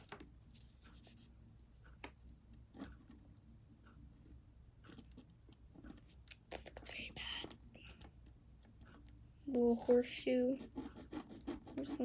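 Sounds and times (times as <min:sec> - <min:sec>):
low room hum: 0:00.0 - 0:12.0
pencil strokes on paper: 0:09.5 - 0:12.0.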